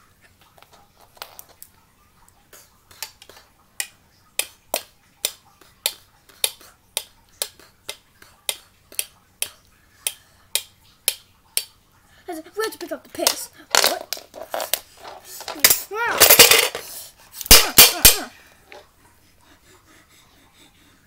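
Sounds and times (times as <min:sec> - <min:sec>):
small hard objects tapping: 0:13.2 - 0:18.8.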